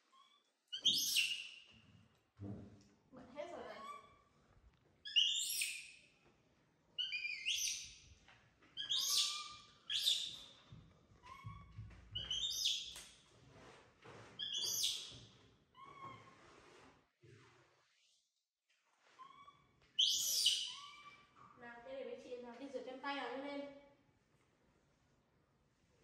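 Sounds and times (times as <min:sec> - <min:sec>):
baby monkey squealing calls: 0:08.8 - 0:10.4, 0:12.2 - 0:12.8, 0:14.4 - 0:15.0, 0:19.2 - 0:21.2.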